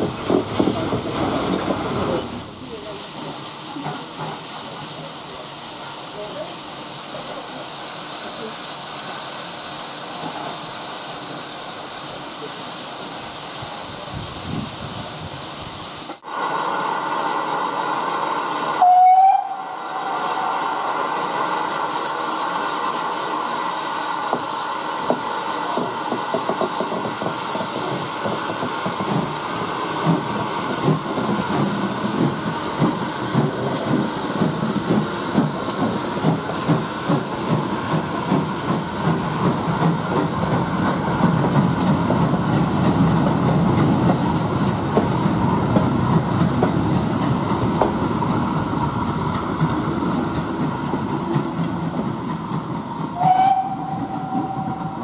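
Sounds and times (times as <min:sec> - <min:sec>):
hissing steam: 0:00.0 - 0:55.0
steam whistle: 0:18.8 - 0:20.6, 0:53.2 - 0:55.0
steam locomotive exhaust chuffs: 0:24.0 - 0:55.0.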